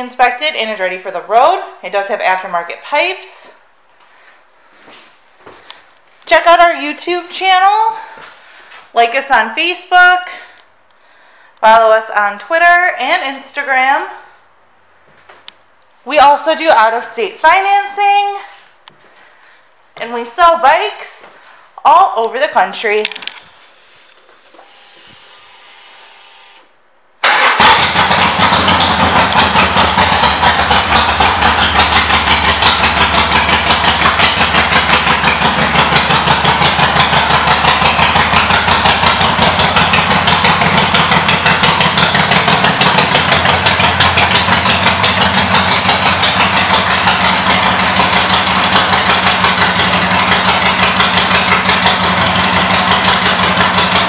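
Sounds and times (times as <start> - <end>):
motorcycle engine idling loudly: 27.3 - 54.0.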